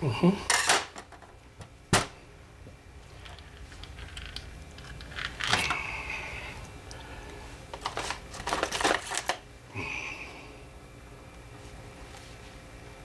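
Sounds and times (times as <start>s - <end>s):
small parts and tools rattling: 3.1s - 5.9s, 7.7s - 9.4s.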